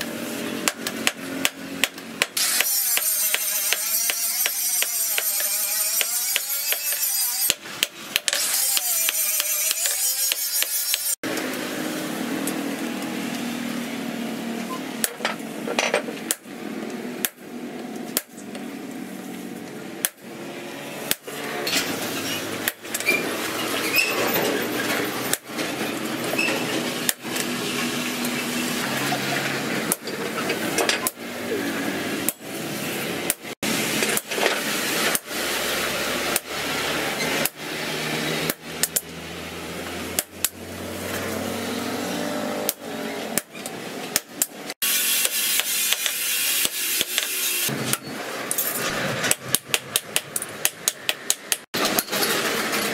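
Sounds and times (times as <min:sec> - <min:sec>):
hammer striking hot steel: 0:00.6 - 0:11.2, 0:44.1 - 0:52.1.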